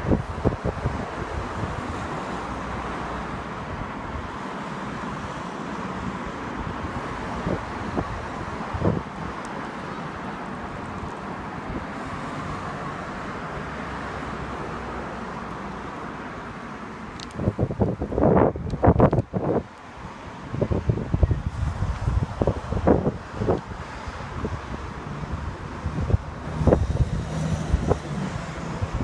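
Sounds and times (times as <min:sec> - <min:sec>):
wind on microphone: 0:00.0 - 0:02.2, 0:06.0 - 0:09.8, 0:17.2 - 0:29.0
traffic hum: 0:00.0 - 0:29.0
low wind thumps on microphone: 0:06.6 - 0:09.4, 0:17.2 - 0:19.7, 0:20.4 - 0:29.0.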